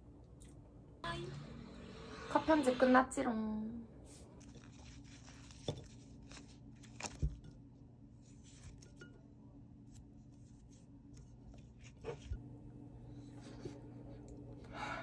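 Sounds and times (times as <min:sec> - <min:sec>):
steady low hum: 0:00.0 - 0:15.0
soft handling sounds: 0:04.1 - 0:12.5.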